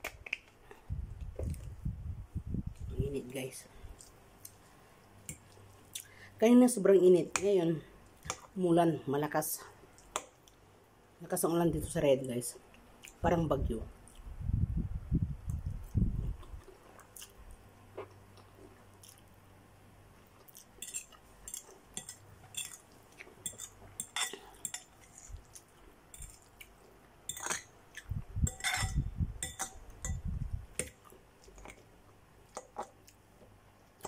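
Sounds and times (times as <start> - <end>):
chewing: 15.5 - 19.3, 20.2 - 28.1
fork clinking against bowl: 20.8 - 22.8, 23.4 - 25.0, 27.3 - 27.7, 28.4 - 30.2.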